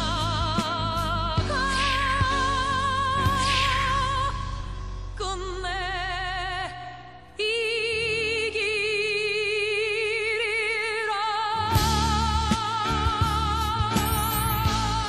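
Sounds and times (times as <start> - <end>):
high sung melody with vibrato: 13.2 - 15.0
music beat: 13.2 - 15.0.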